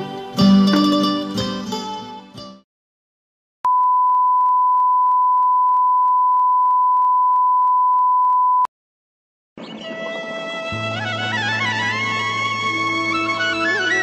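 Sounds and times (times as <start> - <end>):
plucked-string music: 0.0 - 2.6, 9.9 - 14.0.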